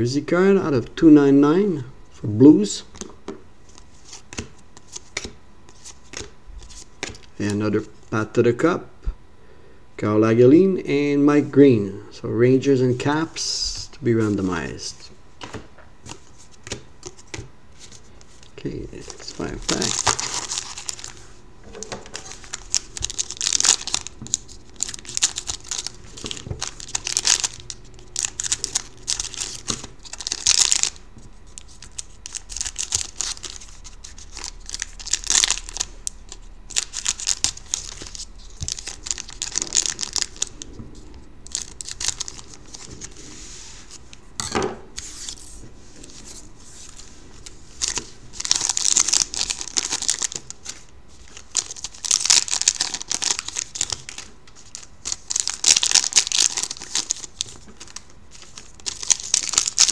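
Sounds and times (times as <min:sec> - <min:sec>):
foil wrappers crinkling: 0:15.4 - 0:44.2, 0:45.0 - 0:59.9
foil packs being torn open: 0:19.1 - 0:21.2, 0:21.8 - 0:40.6, 0:41.5 - 0:43.2, 0:47.4 - 0:59.9.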